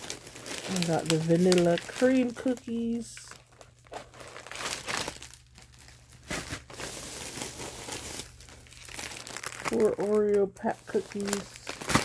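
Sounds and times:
crinkly plastic packaging rustling: 0.0 - 12.0.

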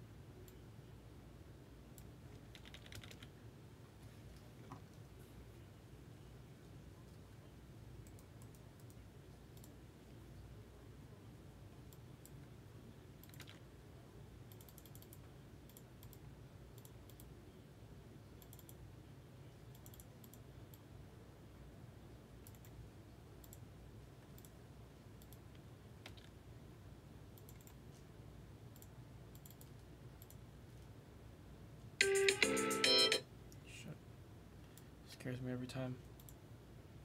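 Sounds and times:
low steady hum: 0.0 - 37.0
computer mouse clicks: 1.9 - 3.3, 8.0 - 9.8, 13.2 - 13.7, 14.5 - 17.4, 18.4 - 18.8, 19.7 - 20.8, 22.4 - 22.8, 23.4 - 24.6, 25.2 - 26.4, 27.3 - 28.0, 28.7 - 30.9, 36.1 - 36.4.

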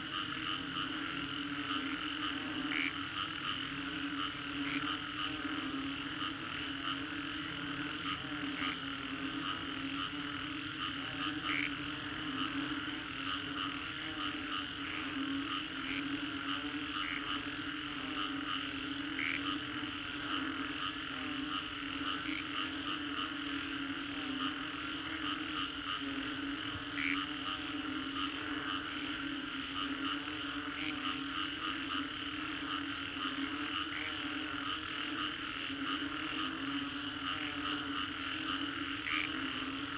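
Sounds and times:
high frog chirping: 0.0 - 39.9
low droning frog calls: 0.0 - 39.9
sharp short frog calls: 0.0 - 39.9.

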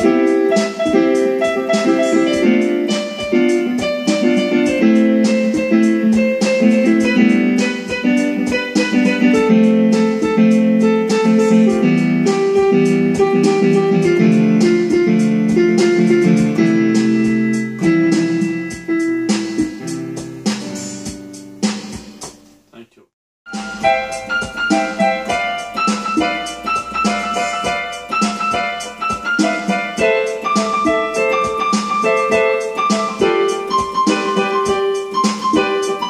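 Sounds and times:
plucked guitar music: 0.0 - 20.6, 23.5 - 36.0.

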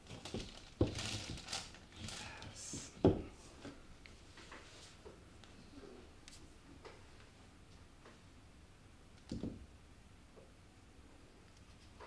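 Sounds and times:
light paper rustling: 0.0 - 2.9.

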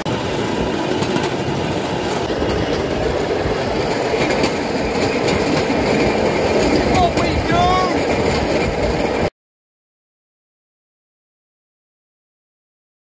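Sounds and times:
steel wheels rumbling on rails: 0.0 - 9.3.

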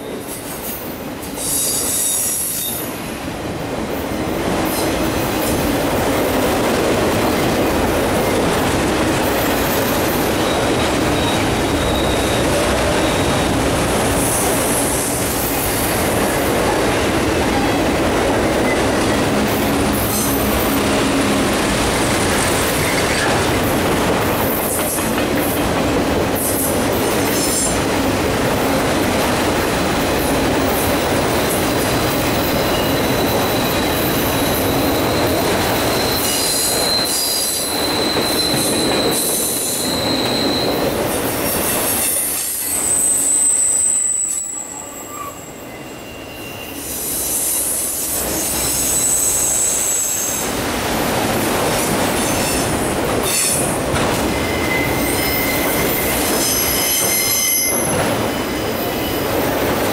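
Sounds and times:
train wheels rumbling on rail: 0.0 - 59.9
wheel flange squeal: 10.4 - 13.3, 32.5 - 40.8, 42.6 - 47.6, 48.4 - 50.4, 54.3 - 58.4.

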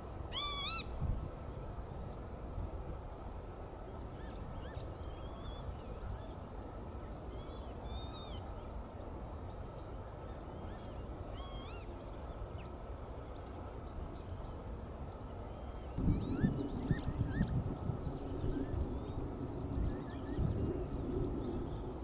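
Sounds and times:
steady low rumble: 16.0 - 22.0.

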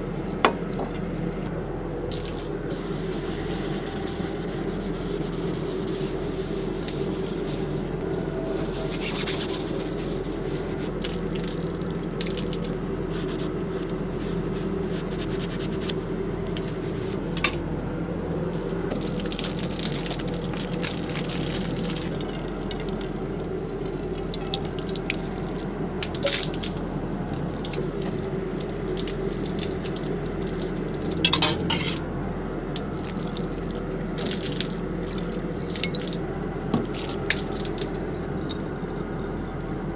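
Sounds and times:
steady low hum: 0.0 - 39.9
water trickling onto pavement: 2.1 - 2.6, 10.9 - 12.8, 18.9 - 31.4, 32.1 - 36.2, 36.8 - 39.9.

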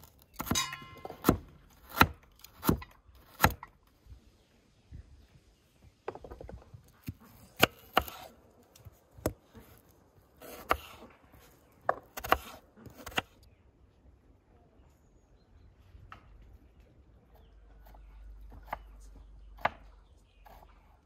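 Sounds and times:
knife chopping on wooden board: 7.0 - 8.3, 10.4 - 11.1, 11.9 - 13.3.

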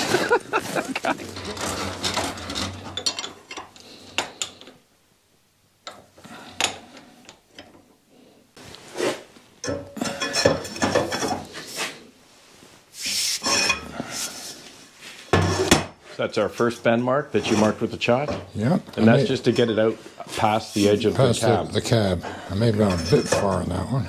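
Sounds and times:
metal clanking and scraping: 0.2 - 3.7, 22.8 - 23.6.

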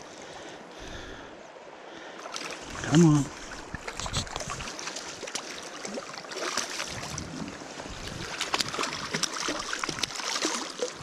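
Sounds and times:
running water: 2.0 - 11.0.

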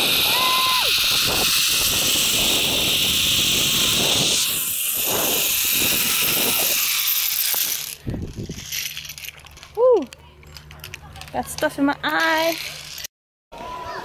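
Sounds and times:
wind noise on microphone: 0.0 - 8.8
zip-line pulley hissing on cable: 0.0 - 9.1.

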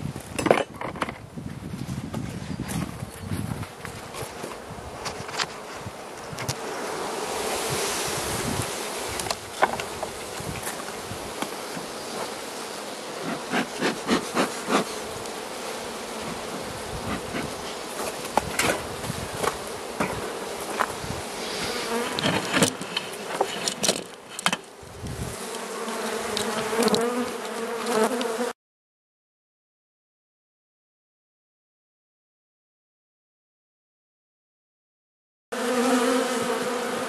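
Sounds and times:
bees humming: 5.6 - 28.5, 35.6 - 37.0.

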